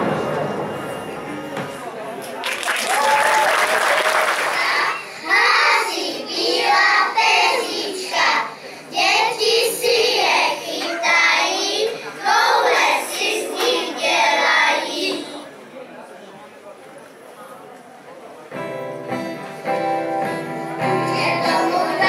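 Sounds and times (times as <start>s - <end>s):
children singing in unison: 4.3s - 15.4s, 20.8s - 22.0s.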